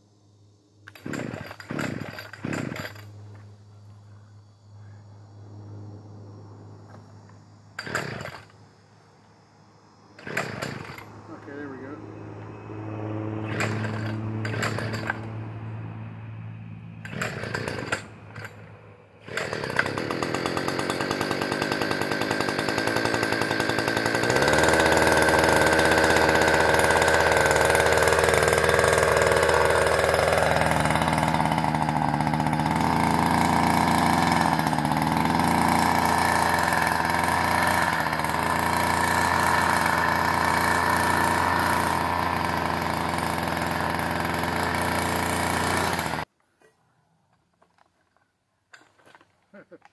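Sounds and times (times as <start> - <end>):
string trimmer engine running: 0.9 - 3.1, 7.8 - 8.6, 10.2 - 15.5, 17.0 - 46.3
pull-start cord pulls: 7.8 - 8.6, 13.5 - 15.3, 17.0 - 18.6.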